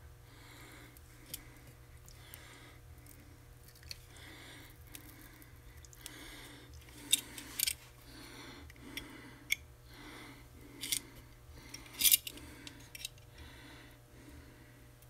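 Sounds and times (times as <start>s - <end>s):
metal tools clicking and clinking: 11.8s - 13.2s.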